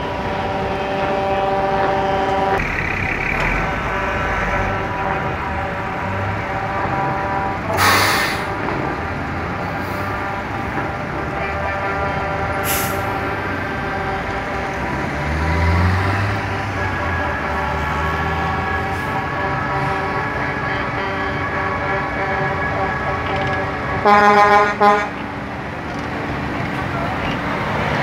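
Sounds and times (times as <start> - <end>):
truck diesel engines idling: 0.0 - 28.0
truck engine revving: 0.0 - 28.0
air brake hisses: 7.8 - 8.6, 12.6 - 13.2.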